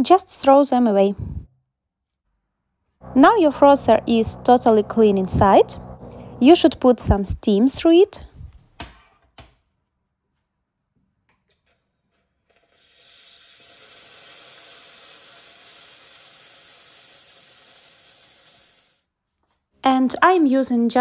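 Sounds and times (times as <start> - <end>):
steam wand hissing: 12.8 - 19.0.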